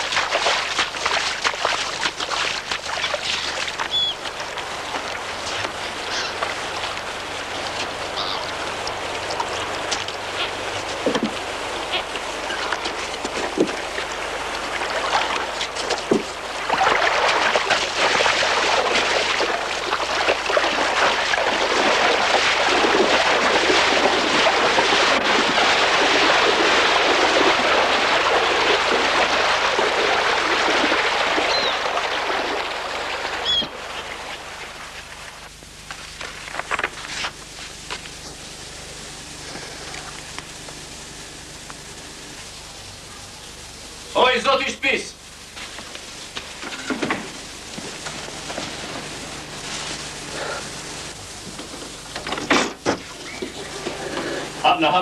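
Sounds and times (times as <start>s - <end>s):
water splashing around a rowboat: 0.0s - 42.7s
gulls crying: 2.2s - 34.9s
boat knocks: 10.8s - 11.5s, 12.8s - 14.0s, 15.3s - 16.9s, 51.4s - 54.3s.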